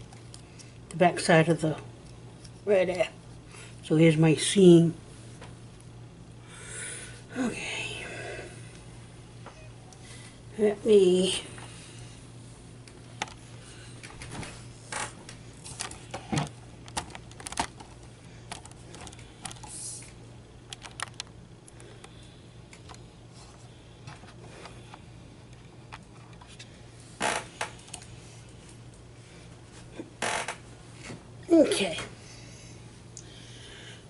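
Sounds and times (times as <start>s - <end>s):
steady low hum: 0.0s - 34.0s
small clicks and taps: 20.7s - 23.0s.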